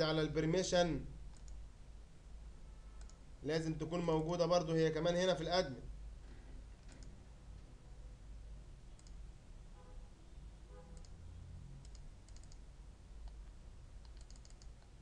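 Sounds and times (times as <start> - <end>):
low steady hum: 0.0 - 15.0
computer mouse clicks: 1.3 - 1.6, 3.0 - 3.2, 6.8 - 7.7, 9.0 - 9.2, 11.0 - 11.2, 11.8 - 15.0.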